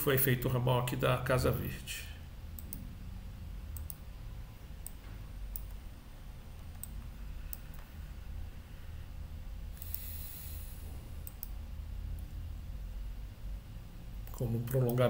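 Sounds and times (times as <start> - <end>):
low steady hum: 0.0 - 15.0
computer mouse clicking: 3.7 - 4.0, 4.8 - 5.8, 6.6 - 7.9, 9.8 - 10.2, 11.2 - 12.3.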